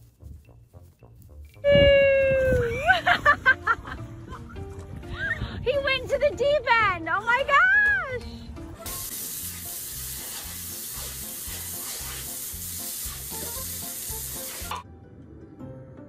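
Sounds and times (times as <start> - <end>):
soft background music: 0.0 - 16.0
hose spraying water on concrete: 8.8 - 14.8.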